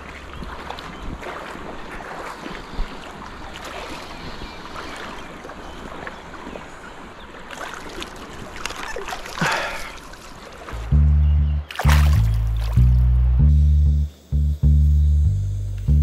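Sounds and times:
river water rushing: 0:00.0 - 0:10.9, 0:11.6 - 0:13.0
loud water splash: 0:11.7 - 0:13.0.

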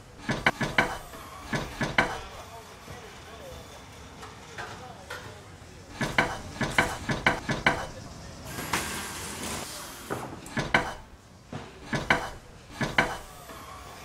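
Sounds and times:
sharp clicks and knocks: 0:00.2 - 0:02.4, 0:06.0 - 0:08.1, 0:10.4 - 0:13.3.

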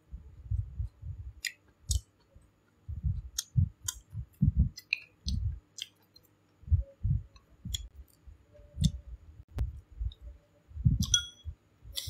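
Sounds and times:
person chewing: 0:04.8 - 0:06.2.

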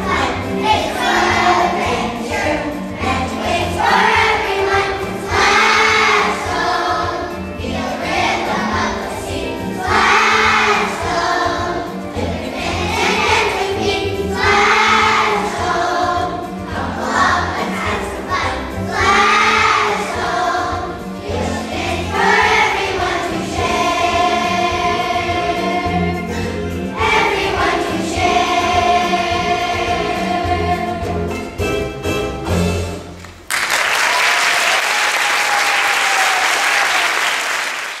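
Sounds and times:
children's choir singing: 0:00.0 - 0:31.6
audience applause: 0:33.2 - 0:38.0.

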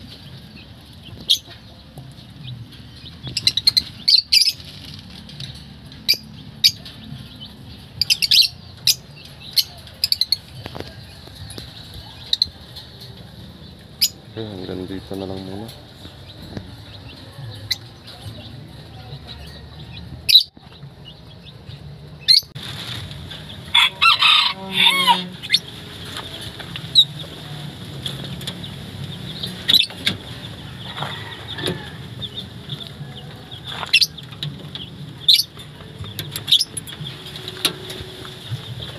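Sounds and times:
chickens clucking: 0:00.0 - 0:38.9
rooster crowing: 0:23.7 - 0:25.6, 0:30.6 - 0:32.2.

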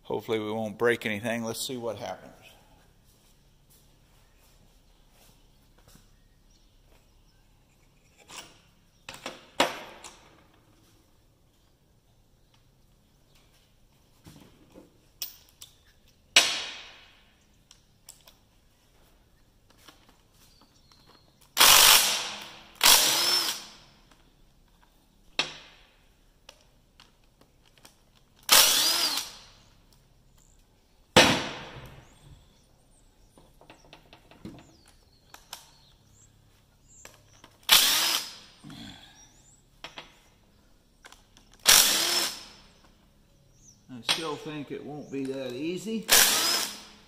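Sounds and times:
impact driver bursts: 0:21.6 - 0:23.9, 0:28.5 - 0:29.6, 0:37.6 - 0:38.6, 0:41.6 - 0:42.8, 0:46.1 - 0:47.0.

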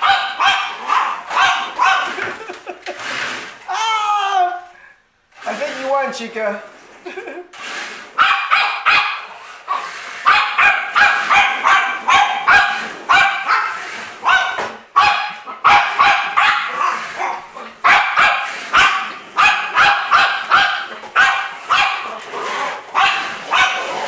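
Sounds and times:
dog barking sharply: 0:00.0 - 0:02.2, 0:08.2 - 0:22.1, 0:22.9 - 0:24.0.

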